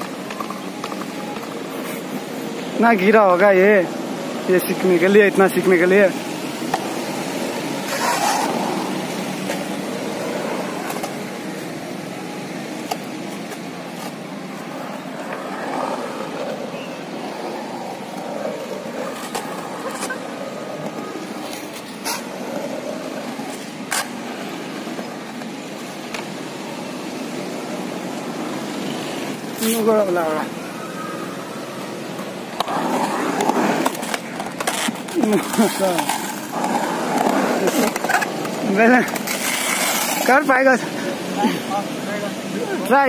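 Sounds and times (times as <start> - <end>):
skateboard clacks on concrete: 0.0 - 1.7, 32.0 - 40.3
traffic rumble: 0.0 - 43.0.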